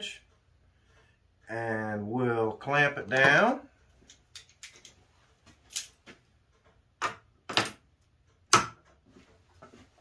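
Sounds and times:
sharp knocks and clicks of clamping: 0:06.6 - 0:09.0.

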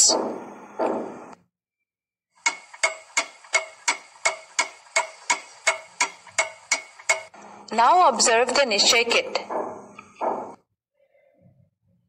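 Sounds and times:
clock ticking: 0:02.4 - 0:10.5.

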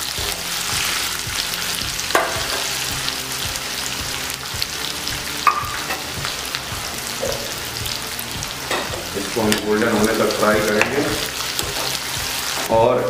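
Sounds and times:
onions sizzling in hot oil: 0:00.0 - 0:13.0
spatula stirring: 0:08.6 - 0:12.7.

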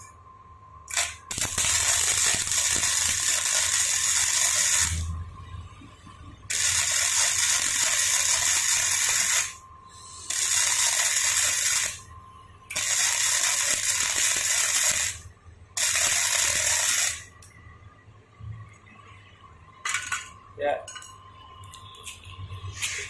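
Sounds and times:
welder crackling hiss: 0:00.9 - 0:05.1, 0:06.5 - 0:12.0, 0:12.7 - 0:15.2, 0:15.8 - 0:17.3.

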